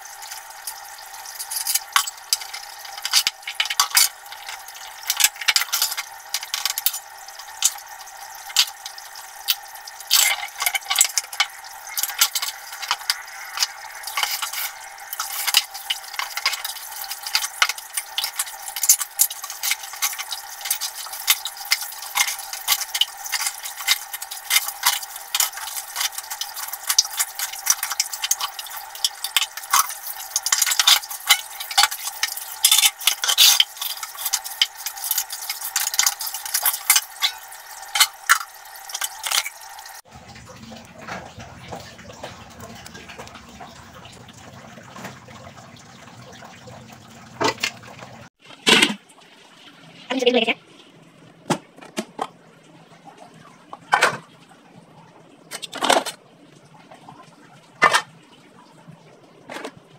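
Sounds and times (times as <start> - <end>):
water splashing: 0.0 - 50.8
dishes clinking and scraping: 0.3 - 39.7, 47.4 - 49.0, 57.8 - 58.1.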